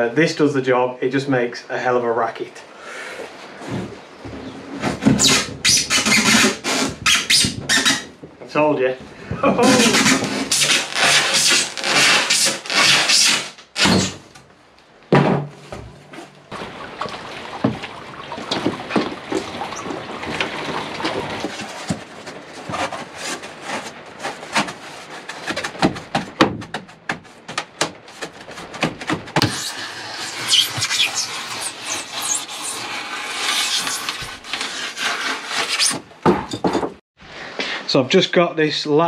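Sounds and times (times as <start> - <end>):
knife sawing through foam board: 5.2 - 8.0, 9.7 - 14.2, 29.4 - 36.0
thud: 15.1 - 16.0.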